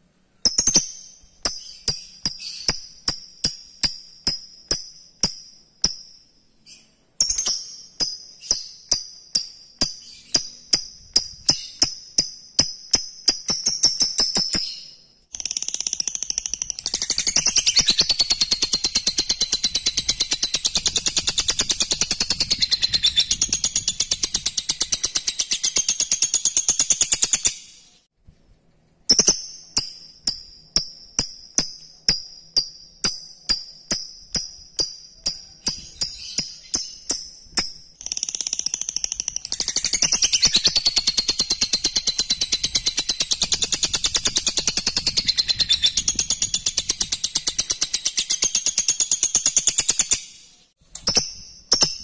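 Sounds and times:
bird chirping: 0.1s - 28.1s, 29.1s - 52.0s
sharp high ringing bird notes: 0.4s - 15.2s, 29.1s - 38.0s
lovebird chattering trill: 6.7s - 27.6s, 33.8s - 50.2s.

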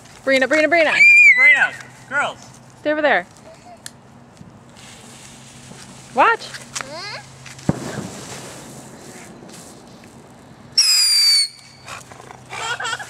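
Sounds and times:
firework fizzing hiss: 4.7s - 11.9s
shrill falling whistle: 10.8s - 11.7s.

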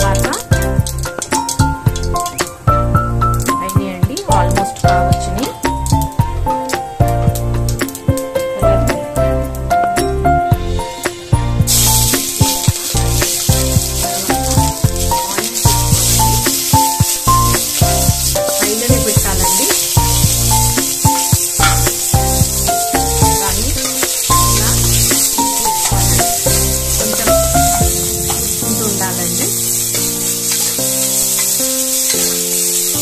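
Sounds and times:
onions sizzling in hot oil: 0.0s - 33.0s
melody with bass line: 8.6s - 30.5s.

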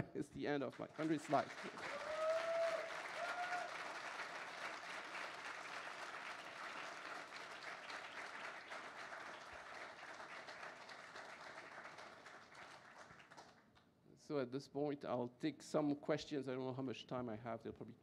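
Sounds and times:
audience applauding: 0.7s - 13.6s.

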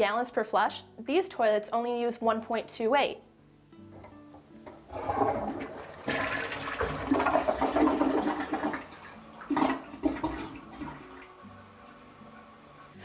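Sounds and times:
toilet flushing: 4.8s - 13.0s
toilet gurgling: 4.8s - 13.0s.

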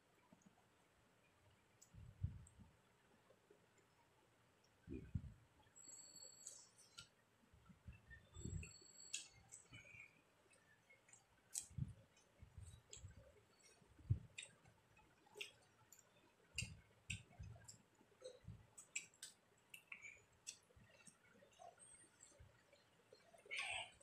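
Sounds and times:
soft low thumps: 1.9s - 2.8s, 4.8s - 5.4s, 7.6s - 8.7s, 11.7s - 13.3s, 14.0s - 14.4s
chewing: 8.7s - 23.9s.

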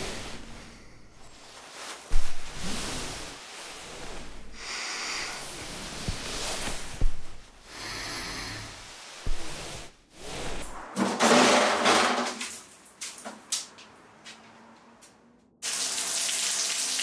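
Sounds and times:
slow heavy breathing: 0.0s - 1.4s, 2.3s - 10.7s.

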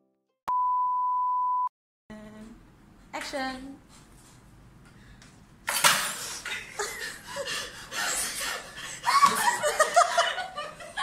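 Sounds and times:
women laughing and giggling: 6.4s - 11.0s.

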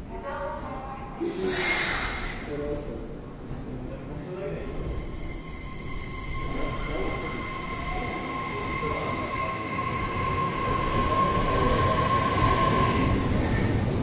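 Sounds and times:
train cars rumbling: 3.2s - 14.0s
electric train motor whine: 4.6s - 14.0s.

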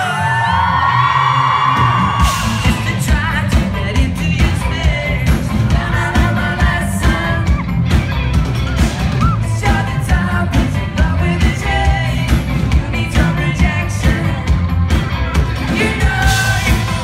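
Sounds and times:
pop-rock band playing: 0.0s - 17.0s
man singing into microphone: 2.5s - 7.5s.

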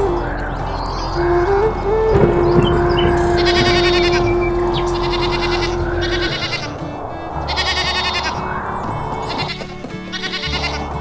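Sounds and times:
held tone: 0.0s - 9.3s
low bass line: 0.0s - 9.5s
background music: 0.0s - 11.0s
sheep bleating: 3.2s - 8.6s, 9.2s - 11.0s.

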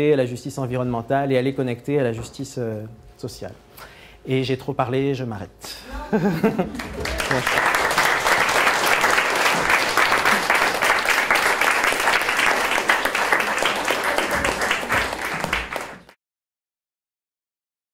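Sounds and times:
audience applauding: 6.6s - 16.2s.

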